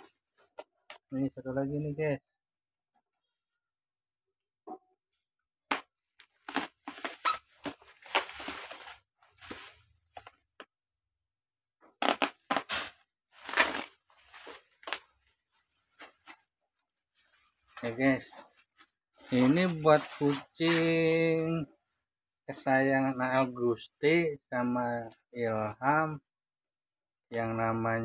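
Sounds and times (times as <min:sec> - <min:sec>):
bubble wrap crackling and rustling: 0:05.7 - 0:10.7, 0:12.0 - 0:26.2.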